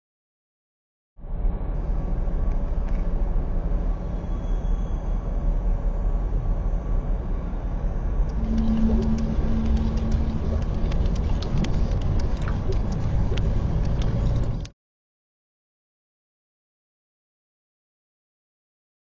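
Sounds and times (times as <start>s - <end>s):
low traffic rumble: 1.2s - 14.7s
brief low hum: 7.5s - 14.7s
scattered clicks: 8.3s - 14.7s.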